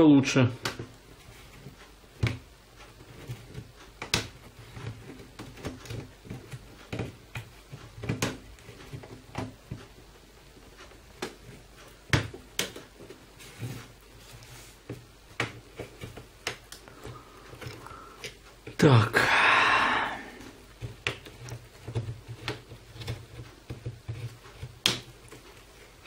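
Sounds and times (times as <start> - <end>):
soft scraping and handling: 13.0 - 18.8.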